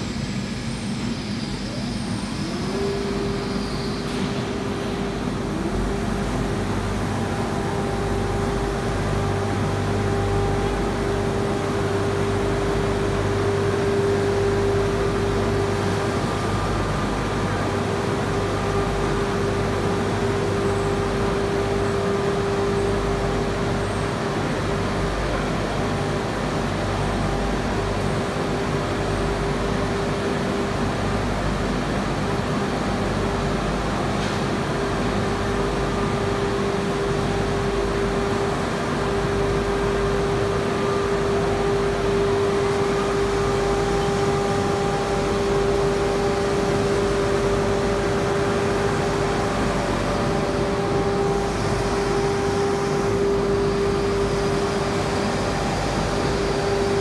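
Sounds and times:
shot blasting machine humming: 0.1s - 57.0s.

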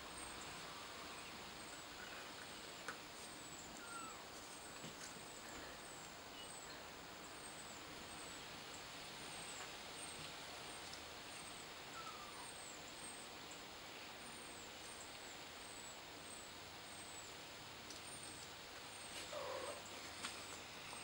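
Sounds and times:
steady background hiss: 0.0s - 21.0s.

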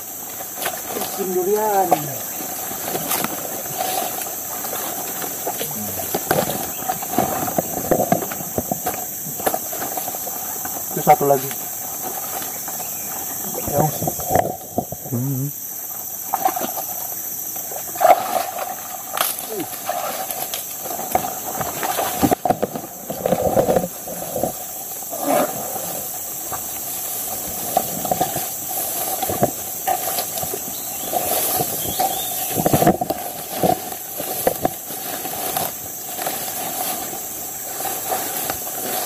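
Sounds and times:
insects droning: 0.0s - 39.0s
footsteps in shallow water: 2.2s - 10.9s, 26.4s - 39.0s.

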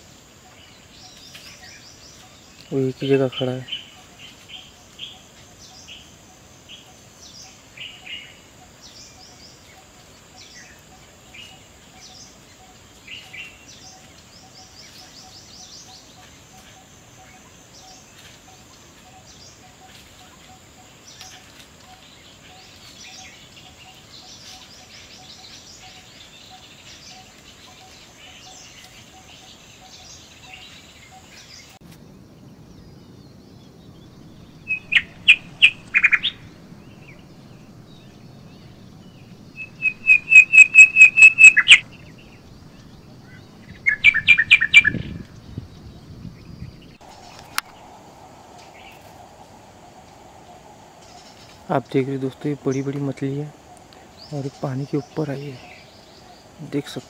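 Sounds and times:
faint bird chirps: 0.0s - 57.0s
bird sharp repeated call notes: 34.7s - 37.2s, 39.6s - 41.8s.

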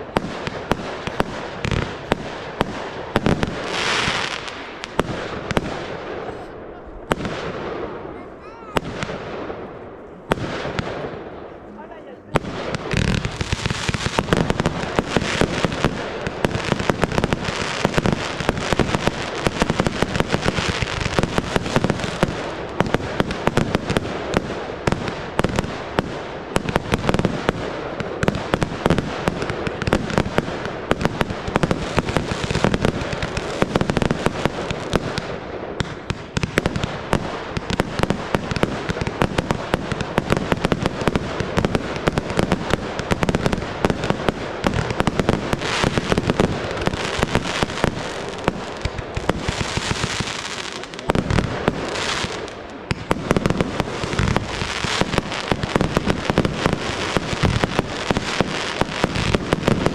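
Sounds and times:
fireworks launches and bursts: 0.0s - 59.9s.

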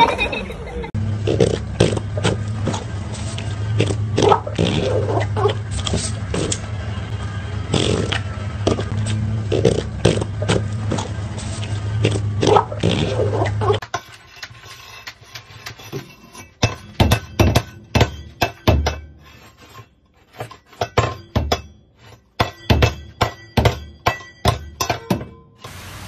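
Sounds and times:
metal bowl clanking and scraping: 9.6s - 25.7s.

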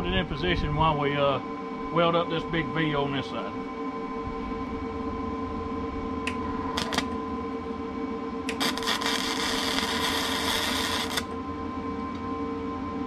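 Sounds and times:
steady hum: 0.0s - 13.0s
welding arc crackling: 6.2s - 7.2s, 8.5s - 11.4s.

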